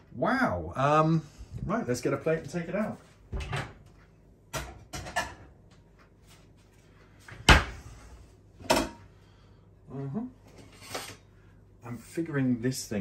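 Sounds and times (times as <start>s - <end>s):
cupboard door opening and shutting: 3.3s - 3.8s, 7.3s - 7.9s.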